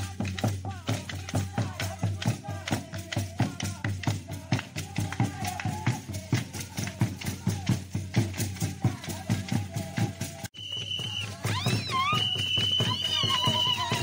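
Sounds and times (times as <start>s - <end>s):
hand clapping: 0.0s - 8.3s
drums beaten fast: 0.0s - 14.0s
group singing: 0.0s - 14.0s.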